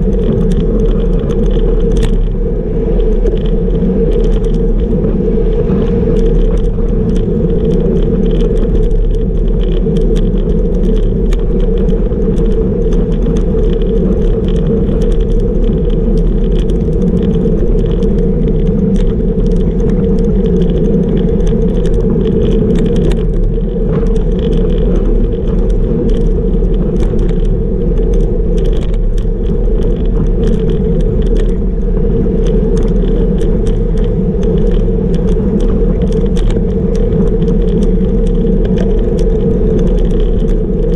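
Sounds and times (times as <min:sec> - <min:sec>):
bicycle road noise: 0:00.0 - 0:40.9
wind noise: 0:00.0 - 0:40.9.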